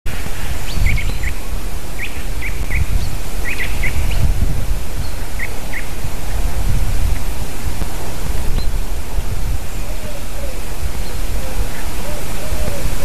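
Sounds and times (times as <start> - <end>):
wind rumbling on microphone: 0.1 - 13.0
small birds chirping: 0.4 - 1.4, 2.0 - 4.4.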